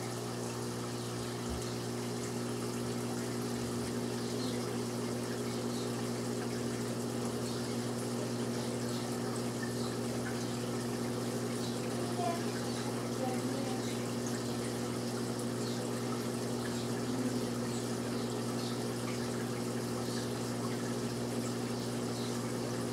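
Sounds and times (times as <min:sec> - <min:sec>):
filter pump motor hum: 0:00.0 - 0:22.9
water rushing: 0:00.0 - 0:22.9.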